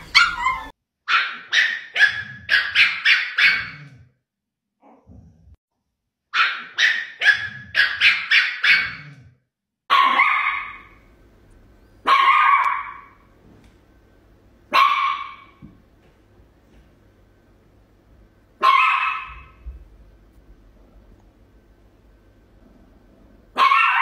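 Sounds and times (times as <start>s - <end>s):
small dog barking: 0.0s - 3.9s, 6.3s - 9.2s, 9.9s - 11.0s, 12.0s - 13.2s, 14.7s - 15.6s, 18.6s - 19.6s, 23.5s - 24.0s.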